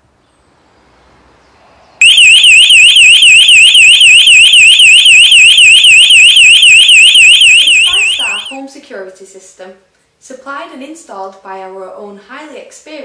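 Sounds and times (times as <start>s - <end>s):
burglar alarm siren warbling: 2.0s - 8.6s.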